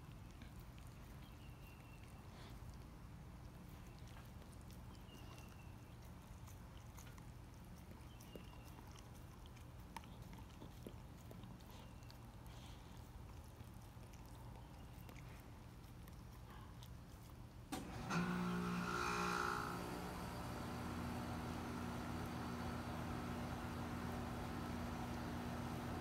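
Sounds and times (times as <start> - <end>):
dog chewing and licking fish: 0.0 - 17.8.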